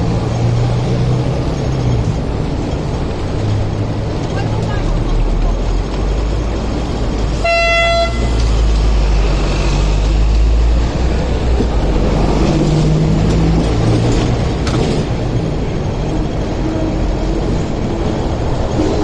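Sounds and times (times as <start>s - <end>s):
city street rumble: 0.0s - 19.0s
tram running past: 0.0s - 19.0s
vehicle horn toot: 7.4s - 8.4s.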